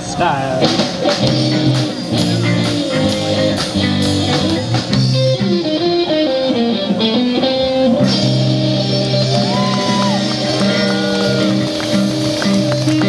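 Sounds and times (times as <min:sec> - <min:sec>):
bass guitar: 0:00.0 - 0:13.0
drum kit: 0:00.0 - 0:13.0
electric guitar melody: 0:00.0 - 0:13.0.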